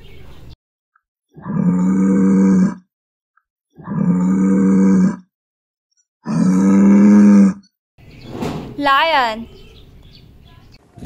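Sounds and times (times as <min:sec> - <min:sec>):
water buffalo mooing: 0:01.4 - 0:02.8, 0:03.8 - 0:05.3, 0:06.2 - 0:07.7.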